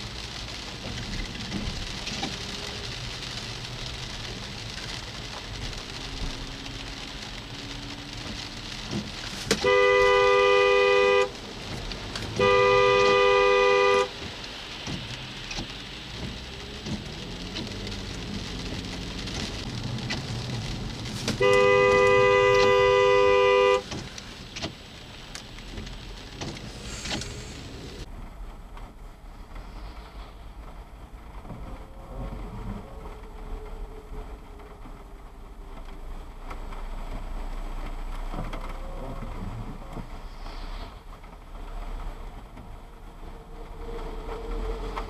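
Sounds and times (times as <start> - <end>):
road and rain noise: 0.0 - 45.0
two-note car horn blasts: 9.6 - 11.3, 12.4 - 14.1, 21.4 - 23.8.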